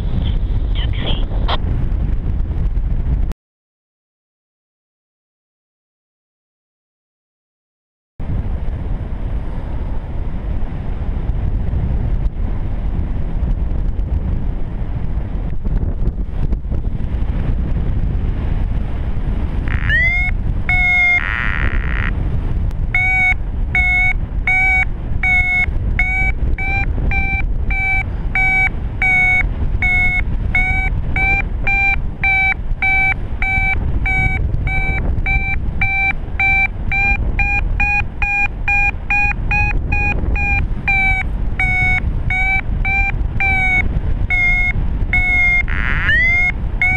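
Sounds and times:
wind rushing over microphone: 0:00.0 - 0:03.4, 0:08.2 - 0:46.9
variometer beeping: 0:19.6 - 0:46.9.

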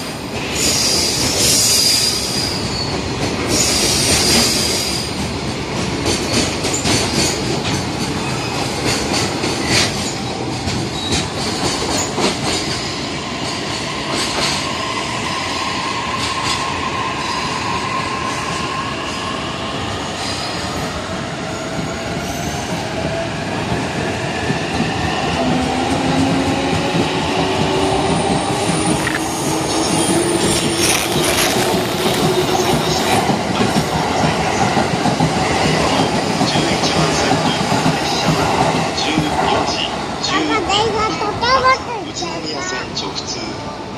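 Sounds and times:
train wheels squealing: 0:00.0 - 0:05.2, 0:06.1 - 0:23.0, 0:28.0 - 0:33.2
freight train rumbling past: 0:00.0 - 0:43.9.

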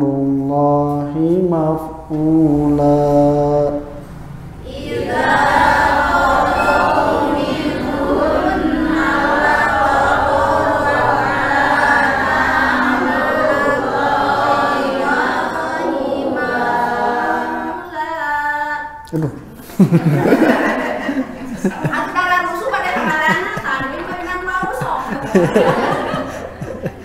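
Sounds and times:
many voices chanting in unison: 0:04.6 - 0:19.0, 0:23.0 - 0:27.0.

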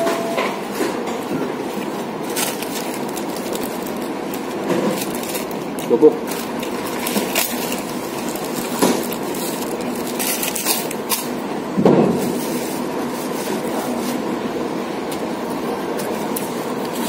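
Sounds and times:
steady background hum: 0:00.0 - 0:17.0
crackers crunching: 0:01.6 - 0:11.6
plastic wrapper rustling: 0:01.7 - 0:11.4.

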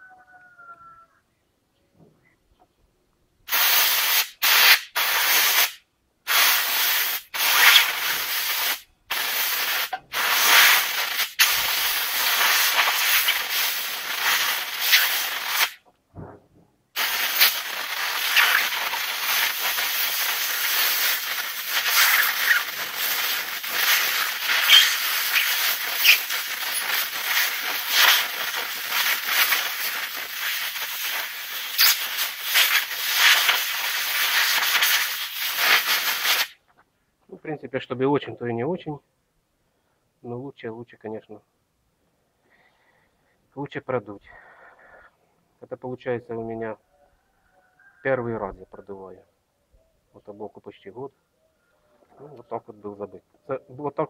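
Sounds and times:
compressed air blow gun hissing: 0:03.5 - 0:15.8, 0:17.0 - 0:36.6.

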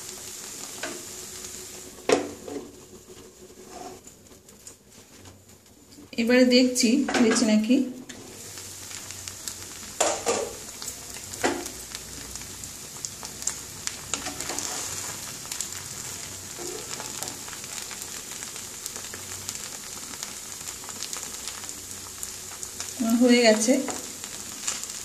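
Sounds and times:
rice sizzling in a pan: 0:00.0 - 0:25.0
spatula scraping pan: 0:03.5 - 0:04.1, 0:14.2 - 0:15.2.

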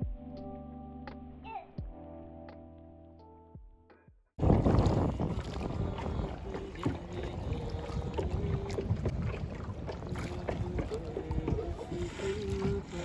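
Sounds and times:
knocks from boat: 0:04.4 - 0:13.0
wind rumble on microphone: 0:04.4 - 0:13.0
person singing long notes: 0:10.2 - 0:13.0.

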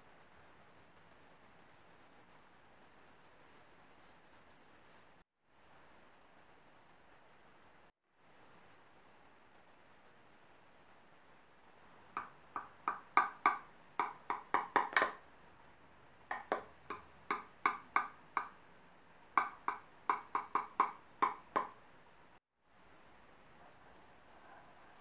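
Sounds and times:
knife tapping ceramic dish: 0:12.2 - 0:15.2, 0:16.3 - 0:18.6, 0:19.4 - 0:21.8.

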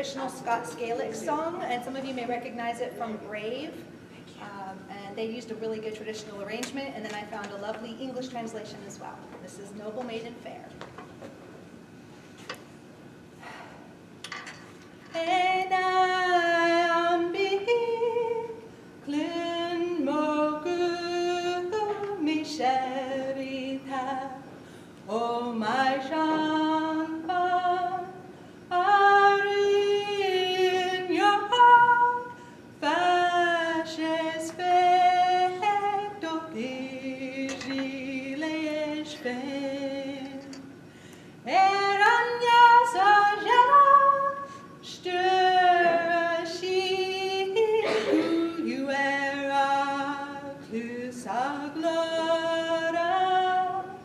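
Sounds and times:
woman singing unaccompanied: 0:15.1 - 0:40.8, 0:41.4 - 0:54.0.

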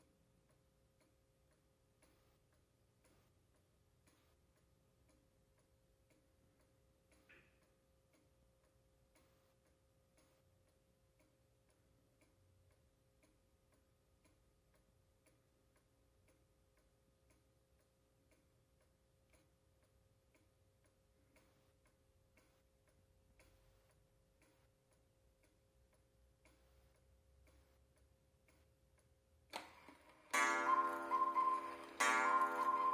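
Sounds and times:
clock ticking: 0:00.0 - 0:32.9.

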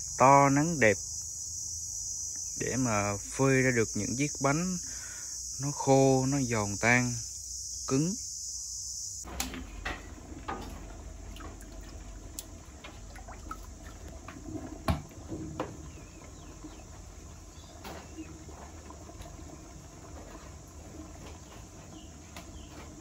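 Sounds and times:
steamer rumbling and steaming: 0:09.3 - 0:23.0.

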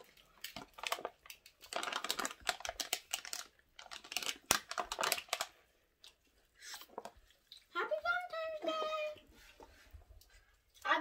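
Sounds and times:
aluminium foil crinkling: 0:00.0 - 0:05.7.

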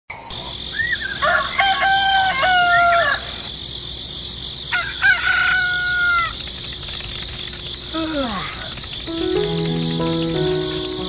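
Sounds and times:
rooster crowing: 0:01.1 - 0:03.5, 0:04.7 - 0:06.4.

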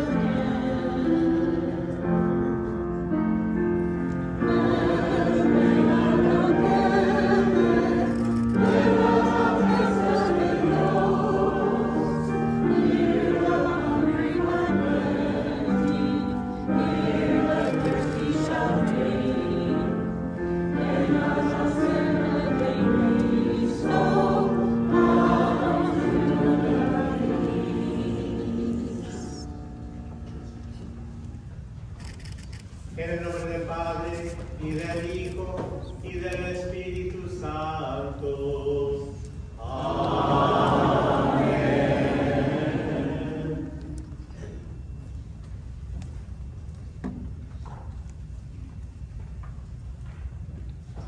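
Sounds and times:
church choir singing a hymn: 0:00.0 - 0:30.3, 0:35.0 - 0:45.0.

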